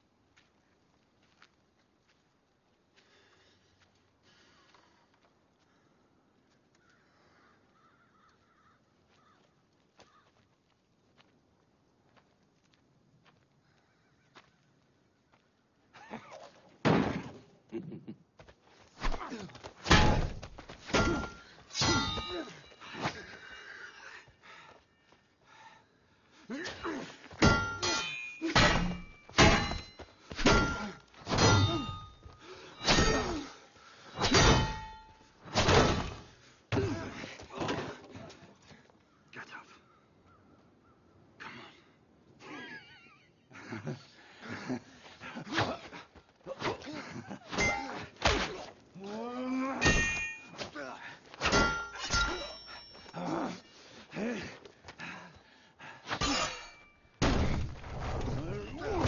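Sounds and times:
sword clanging on shield: 20.9 - 22.6, 27.4 - 33.5, 34.2 - 36.2, 49.8 - 50.8, 51.4 - 53.2.

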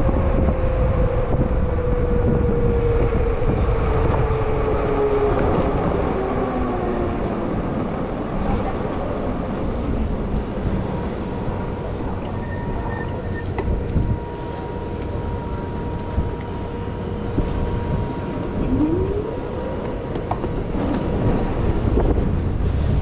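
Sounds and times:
low road rumble: 0.0 - 23.0
faint steady tones: 3.6 - 20.8
short rising whine: 11.6 - 20.2.

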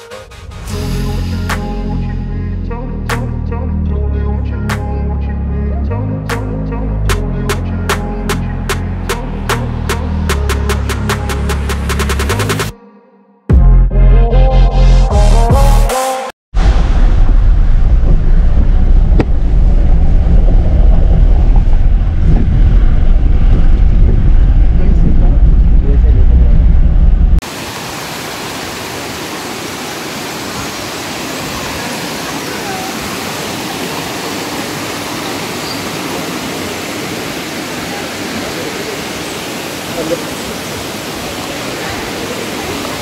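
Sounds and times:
wind buffeting microphone: 16.6 - 27.4
vehicle engine and road rumble: 16.6 - 27.5
water rushing over rocks: 27.4 - 43.0.

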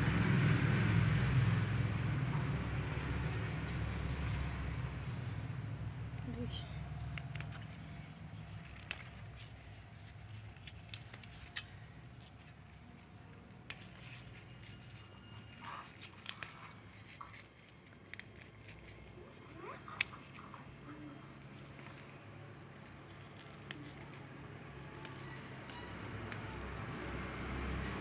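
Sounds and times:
low background hum: 0.0 - 28.0
leaves rustling: 3.8 - 28.0
stems snapping: 6.2 - 20.8, 21.4 - 27.2.

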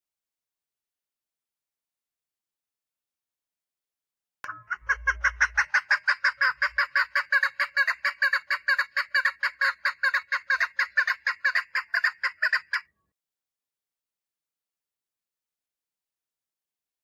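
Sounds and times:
partridge calling: 4.5 - 12.8.

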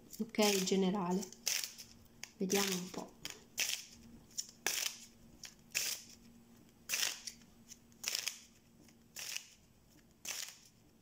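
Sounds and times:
playing cards shuffling: 6.9 - 10.8.

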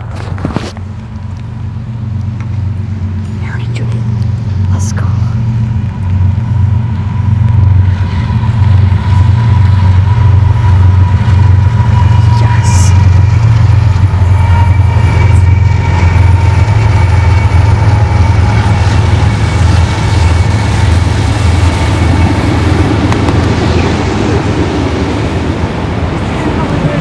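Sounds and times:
locomotive engine drone: 0.0 - 27.0
train cars rolling by: 0.0 - 27.0.

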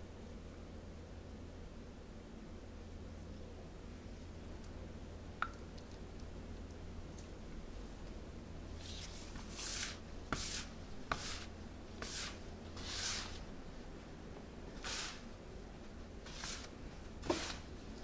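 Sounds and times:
dough scraper scratching countertop: 8.8 - 13.4, 14.8 - 15.2, 16.2 - 17.7.

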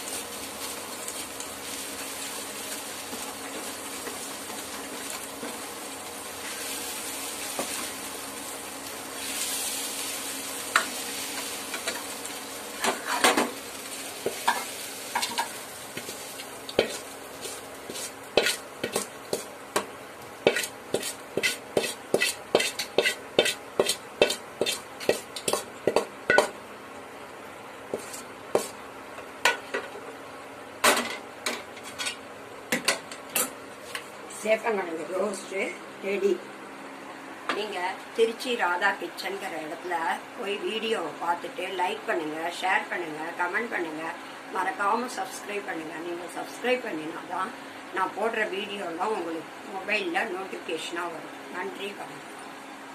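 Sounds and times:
food sizzling in oil: 0.0 - 30.0
metal ladle scraping a pan: 16.8 - 19.1, 20.4 - 25.6.

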